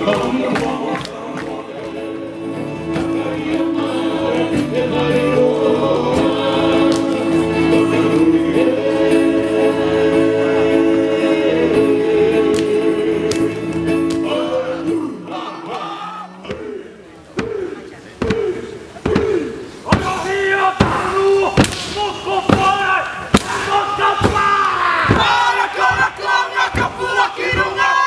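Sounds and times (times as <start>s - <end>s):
group singing in harmony: 0.0s - 22.7s, 23.4s - 28.0s.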